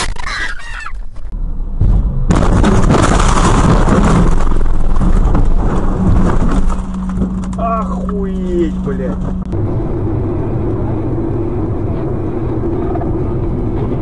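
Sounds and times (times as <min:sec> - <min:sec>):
vehicle crash impact: 0:01.2 - 0:09.5
loud crashing noise: 0:01.8 - 0:07.6.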